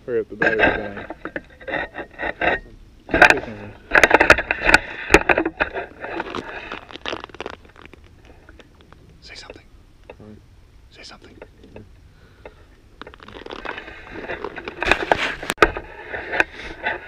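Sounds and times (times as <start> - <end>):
camera handling scraping: 12.4 - 17.0
fabric rubbing: 13.2 - 15.6.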